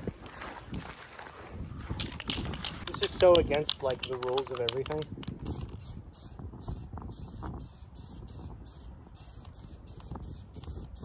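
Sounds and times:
spray hissing: 5.8s - 11.0s.

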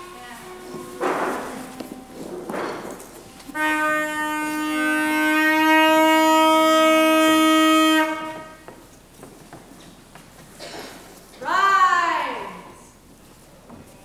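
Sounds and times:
long wind instrument note: 3.4s - 8.6s.

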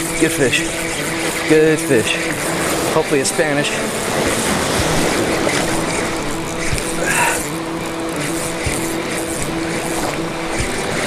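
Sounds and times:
fishing reel humming: 0.0s - 11.0s
surf: 0.0s - 11.0s
wind on microphone: 0.0s - 11.0s.

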